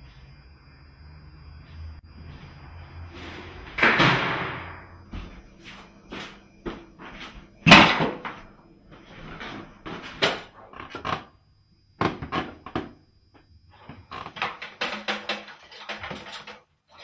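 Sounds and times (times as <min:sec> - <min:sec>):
knocks and clatters: 0:13.8 - 0:17.0.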